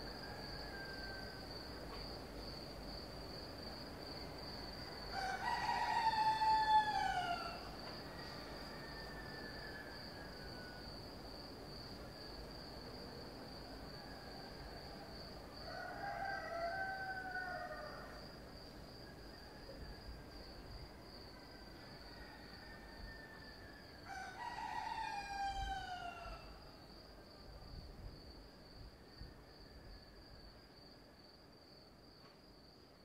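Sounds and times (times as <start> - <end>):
cicadas droning: 0.0 - 33.0
cockerels crowing: 4.8 - 10.8, 15.6 - 18.3, 21.6 - 26.6.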